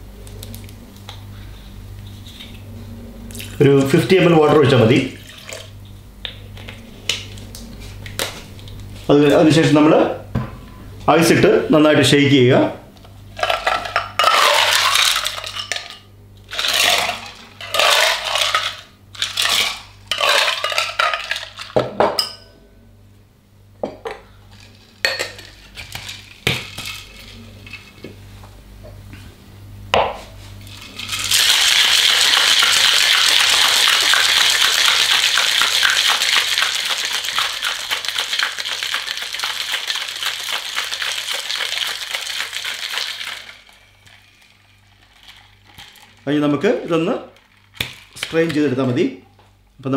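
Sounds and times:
ice clinking into shaker: 0:13.4 - 0:21.8, 0:30.7 - 0:46.2
ice cubes scooped rattling: 0:13.4 - 0:21.8, 0:30.7 - 0:48.5
ice rattling in shaken shaker: 0:13.4 - 0:21.8, 0:25.4 - 0:27.9, 0:30.7 - 0:48.7.

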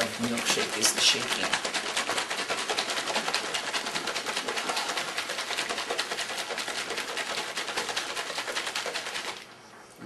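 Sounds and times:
milkshake sloshing in shaker: 0:00.0 - 0:09.9.

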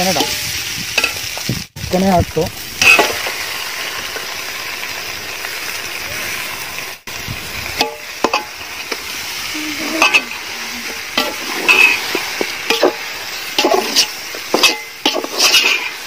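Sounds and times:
sizzling hiss: 0:00.0 - 0:16.0
metal ladle scraping metal pot: 0:02.8 - 0:03.4, 0:09.9 - 0:16.0.

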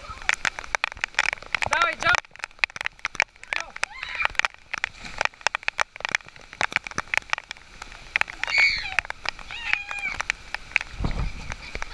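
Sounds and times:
heavy rain: 0:00.0 - 0:11.9
raindrops ticking near microphone: 0:00.0 - 0:11.9.

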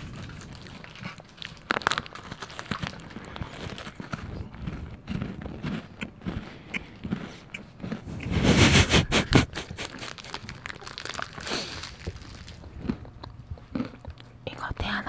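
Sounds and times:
chocolate bar crunching: 0:00.0 - 0:15.0
mouth clicks: 0:05.1 - 0:10.4.

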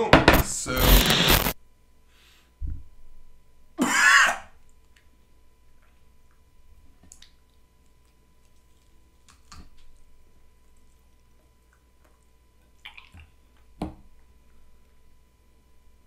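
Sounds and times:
person clearing throat: 0:03.8 - 0:04.5.

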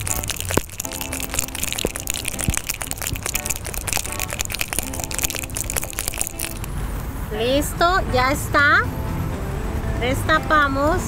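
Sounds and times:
ice rattling in cocktail shaker: 0:00.0 - 0:06.8.

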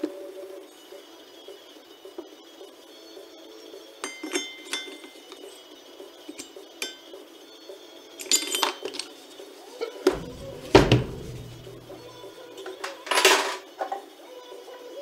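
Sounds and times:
metal parts clinking and clanking: 0:04.1 - 0:05.5, 0:08.2 - 0:09.2, 0:10.1 - 0:13.7
heavy thud of hub set down: 0:10.1 - 0:12.0.

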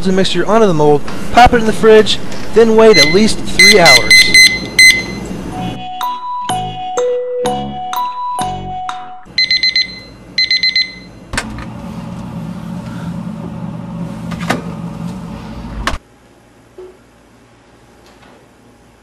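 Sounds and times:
steady hum: 0:00.0 - 0:05.8, 0:09.3 - 0:19.0
digital alarm beeping: 0:02.9 - 0:06.8, 0:09.4 - 0:11.1.

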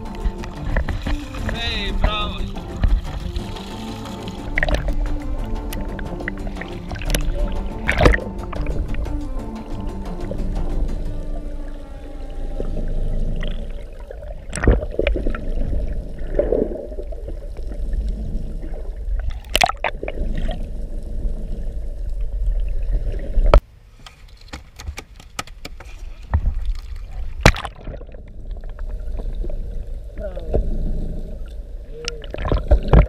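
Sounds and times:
underwater clicks: 0:00.0 - 0:09.2, 0:19.2 - 0:20.6, 0:24.4 - 0:29.5, 0:31.5 - 0:33.0
muffled underwater rumble: 0:00.0 - 0:23.6, 0:26.4 - 0:33.0.

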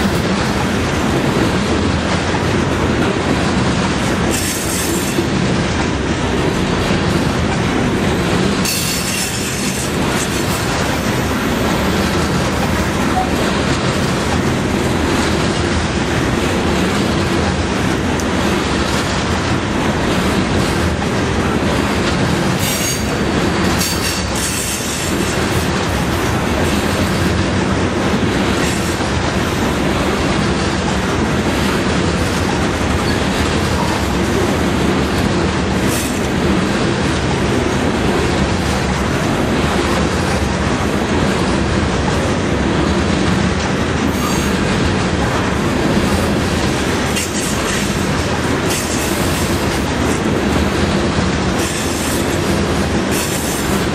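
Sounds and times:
freight train wheels rumbling: 0:00.0 - 0:53.9.

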